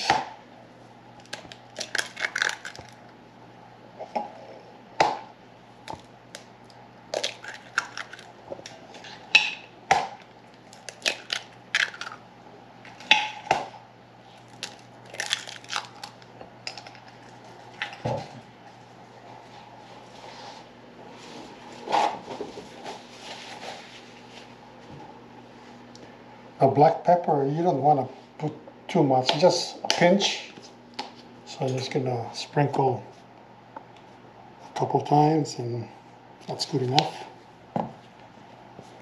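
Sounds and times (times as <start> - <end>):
eggs cracking on glass bowl: 1.2 - 3.0, 7.1 - 8.3, 10.6 - 12.2, 14.5 - 17.2
eggshell crunching: 1.2 - 3.2, 5.8 - 8.8, 10.2 - 12.2, 14.4 - 17.3.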